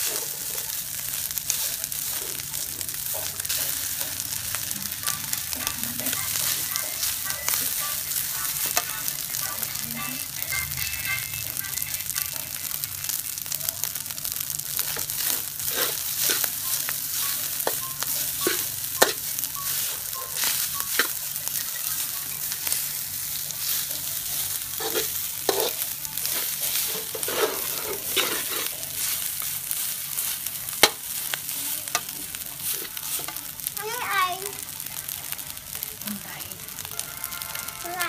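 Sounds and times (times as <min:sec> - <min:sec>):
rice sizzling in a wok: 0:00.0 - 0:38.0
metal spatula scraping a wok: 0:14.8 - 0:33.4
spatula clacking on pan: 0:14.9 - 0:22.8, 0:23.7 - 0:29.2, 0:30.4 - 0:32.2.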